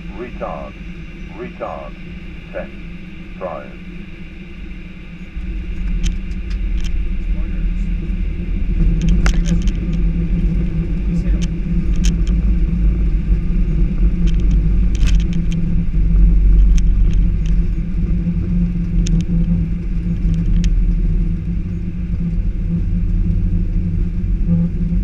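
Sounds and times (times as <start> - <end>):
aircraft engines and wheels rumbling: 0.0 - 25.0
light rattling clicks: 9.0 - 10.0, 11.3 - 12.4.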